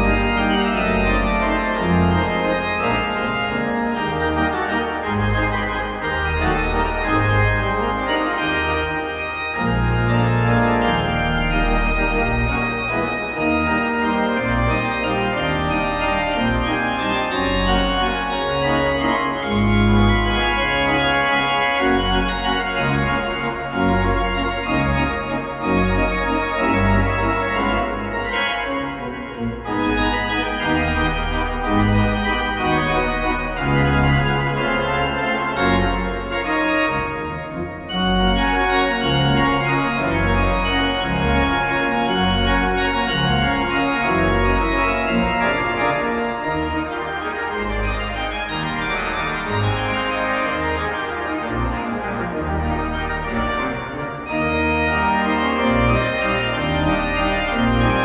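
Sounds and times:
pipe organ playing a waltz: 0.0 - 58.0.

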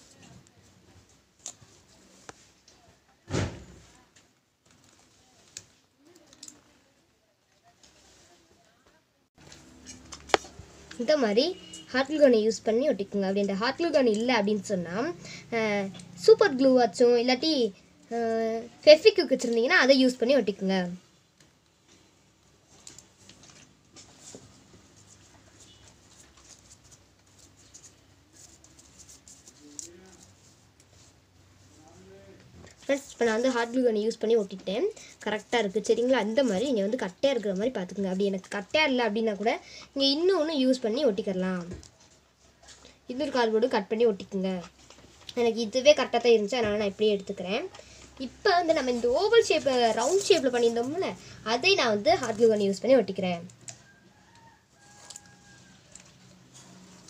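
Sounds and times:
cardboard rustling: 48.2 - 52.6.

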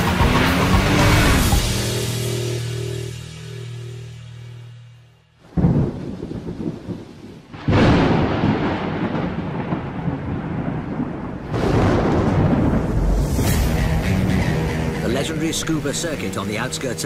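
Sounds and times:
music sting: 0.0 - 5.8, 13.0 - 17.0
heavy rain: 5.4 - 13.4
thunder crack: 5.4 - 15.2.

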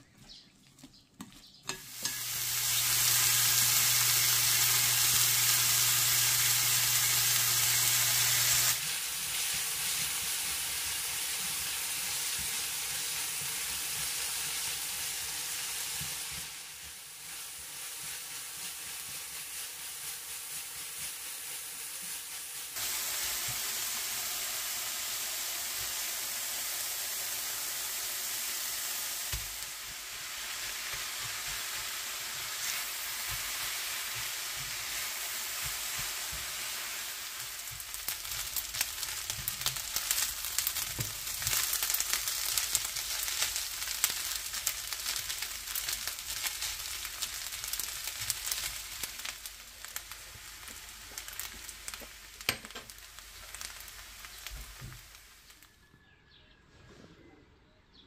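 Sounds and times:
spatula scraping and tapping pan: 1.2 - 2.3, 51.9 - 53.0
food sizzling in frying pan: 1.7 - 55.8.

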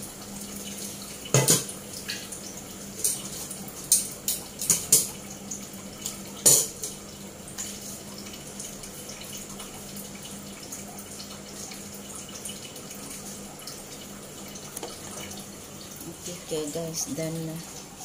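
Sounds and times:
steel cookware clanking: 6.4 - 7.0.

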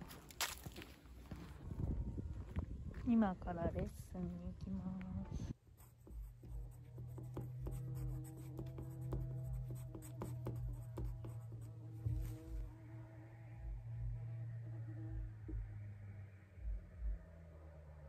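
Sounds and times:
steady low hum: 0.0 - 18.0
pencil scratching and tapping on paper: 5.8 - 12.2.

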